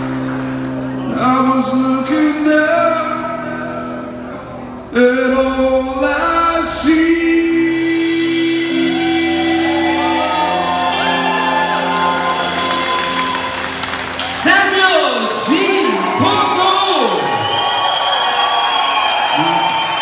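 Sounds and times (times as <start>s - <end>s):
guitar: 0.0s - 17.8s
man singing rock song: 4.9s - 11.1s.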